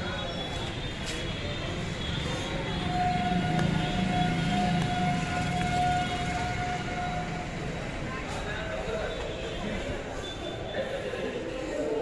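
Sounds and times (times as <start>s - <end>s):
locomotive horn: 2.8s - 7.4s.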